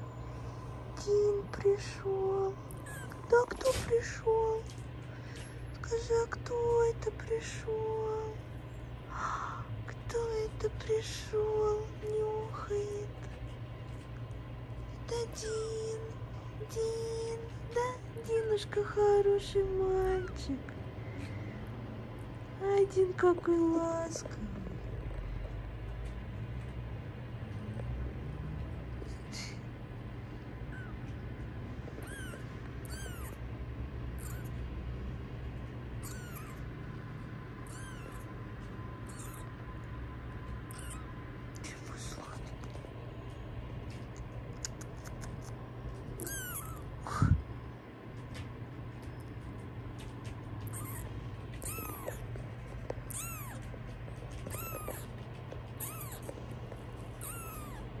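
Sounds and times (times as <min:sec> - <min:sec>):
low hum: 0:00.0 - 0:58.0
kitten mewing: 0:02.7 - 0:03.9, 0:30.6 - 0:31.2, 0:31.9 - 0:33.5, 0:34.2 - 0:34.6, 0:36.0 - 0:36.7, 0:37.6 - 0:38.4, 0:39.0 - 0:39.6, 0:40.6 - 0:41.2, 0:46.2 - 0:47.4, 0:50.6 - 0:52.3, 0:53.0 - 0:56.4, 0:57.1 - 0:58.0.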